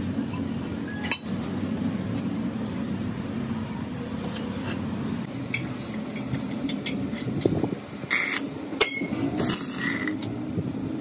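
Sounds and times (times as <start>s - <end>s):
steady low hum: 0.0s - 11.0s
steel pipe clinking on steel plate: 8.8s - 9.2s.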